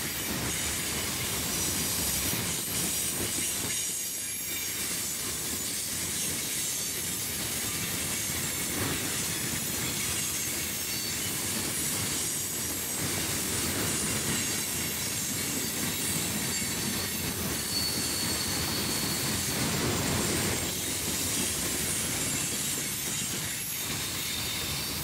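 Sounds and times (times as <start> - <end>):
train wheels rumbling over rails: 0.0 - 25.0
high wheel squeal: 6.2 - 13.0, 13.7 - 25.0.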